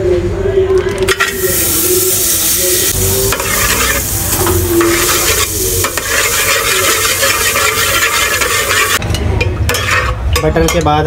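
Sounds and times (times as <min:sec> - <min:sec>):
butter sizzling in a pot: 0:01.1 - 0:09.0
metal spoon stirring against pot: 0:03.2 - 0:11.0.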